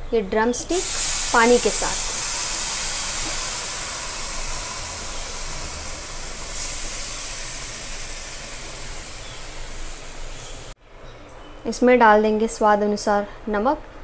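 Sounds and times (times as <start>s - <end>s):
food sizzling in hot pan: 0.7s - 10.8s.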